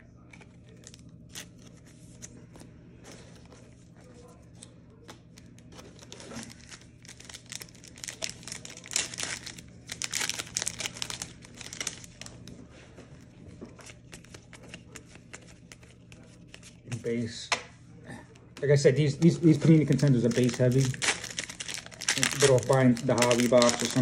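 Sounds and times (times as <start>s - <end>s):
cards being handled: 0.3s - 17.6s, 18.4s - 24.0s
foil wrapper crinkling and tearing: 5.4s - 12.5s, 19.1s - 24.0s.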